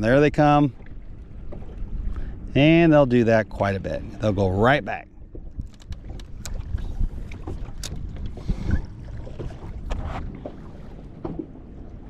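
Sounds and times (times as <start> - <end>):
waves lapping against boat hull: 0.0 - 12.0
wind buffeting microphone: 0.0 - 12.0
light clicks or knocks: 5.5 - 6.6.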